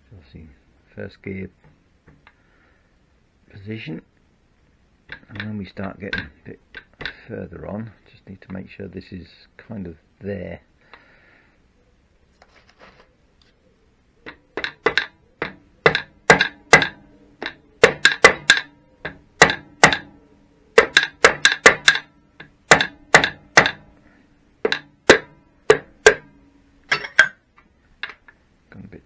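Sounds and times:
mallet knocking on metal cover: 0:14.6 - 0:20.1, 0:20.8 - 0:23.9, 0:24.6 - 0:26.3.

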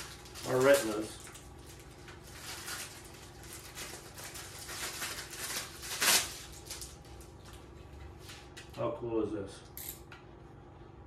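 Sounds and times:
plastic packaging crinkling: 0:00.0 - 0:07.6.

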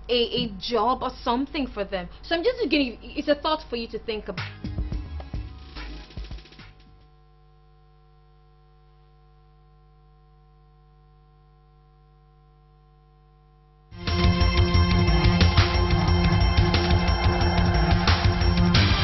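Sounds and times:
faint electrical hum: 0:00.0 - 0:14.0
loud music: 0:04.4 - 0:06.8, 0:14.0 - 0:19.0.

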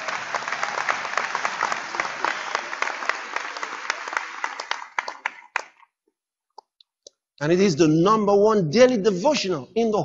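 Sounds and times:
congregation applauding: 0:00.0 - 0:05.9.

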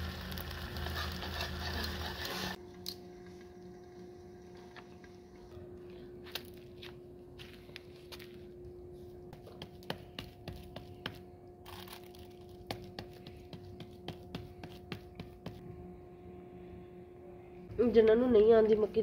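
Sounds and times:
steady low hum: 0:02.5 - 0:19.0
hands patting dough: 0:09.3 - 0:11.3, 0:12.4 - 0:15.6.

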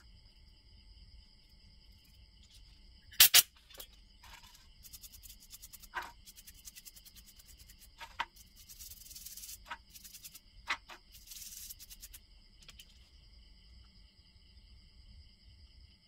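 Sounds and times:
toothbrush scrubbing metal parts: 0:04.2 - 0:12.9
parts clinking against tin: 0:05.9 - 0:06.1.

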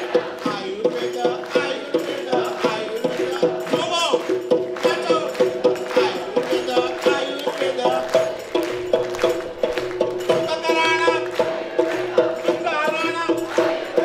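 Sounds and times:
upbeat song with chords and percussion: 0:00.0 - 0:14.0
person singing: 0:04.8 - 0:08.4.

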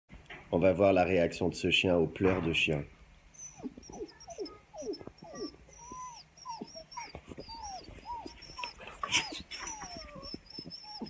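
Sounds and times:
person imitating whimpering dog: 0:03.4 - 0:11.0.

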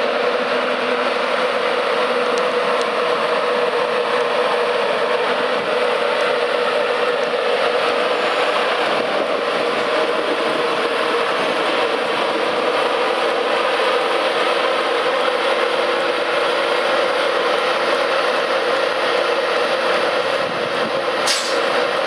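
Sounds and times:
electric locomotive hum: 0:00.0 - 0:22.0
wheels running on rails: 0:00.0 - 0:22.0
sharp click or squeal: 0:21.3 - 0:21.6.

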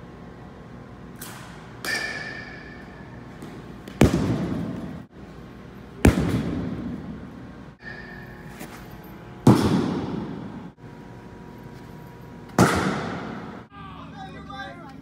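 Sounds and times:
baseballs hitting netting: 0:01.2 - 0:05.0, 0:06.0 - 0:10.7, 0:12.5 - 0:13.6.

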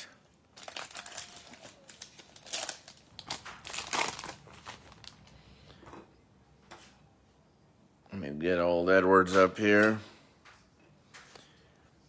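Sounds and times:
plastic wrapper crinkling: 0:00.5 - 0:05.4.

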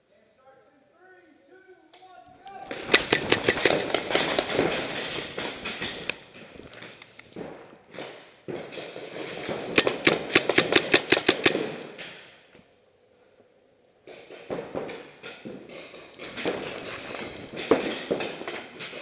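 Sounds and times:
paintball marker firing: 0:02.6 - 0:07.6, 0:08.5 - 0:12.2, 0:14.1 - 0:18.9
scattered pops and knocks: 0:02.7 - 0:12.2, 0:14.0 - 0:19.0.

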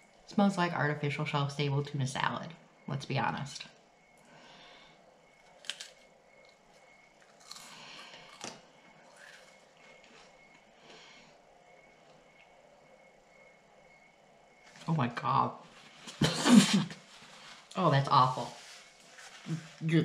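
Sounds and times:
chewing cracker: 0:05.4 - 0:10.6
sharp crunch: 0:05.5 - 0:06.0, 0:07.3 - 0:09.5.

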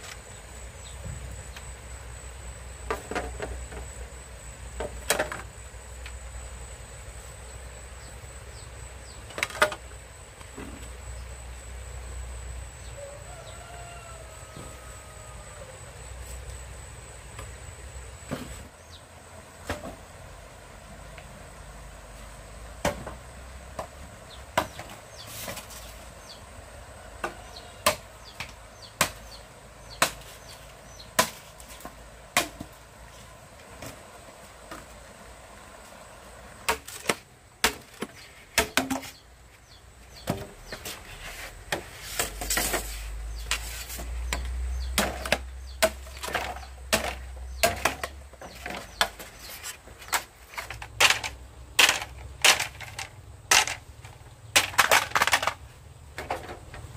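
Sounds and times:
chopping strikes on wood: 0:22.8 - 0:23.2, 0:29.9 - 0:30.2, 0:31.2 - 0:31.4.

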